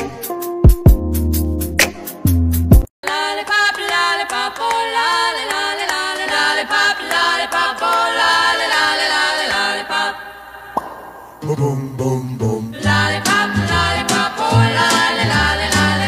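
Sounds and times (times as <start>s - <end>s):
person singing a melody: 11.4s - 16.0s.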